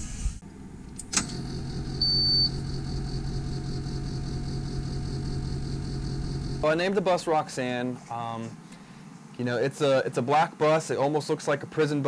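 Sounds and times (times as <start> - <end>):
steady low hum: 0.0 - 12.0
high-pitched warning beep: 2.0 - 2.6.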